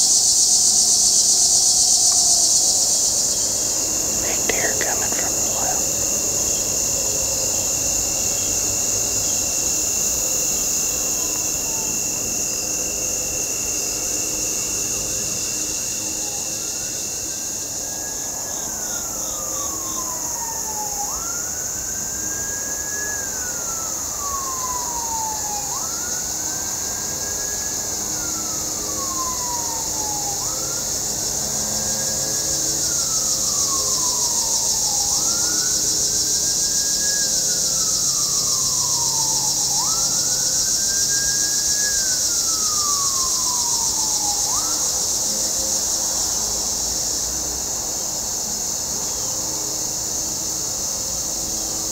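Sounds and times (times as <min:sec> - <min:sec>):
steady high-pitched hiss: 0:00.0 - 0:09.8
distant siren wailing: 0:04.0 - 0:06.7, 0:18.0 - 0:36.0, 0:37.8 - 0:46.4.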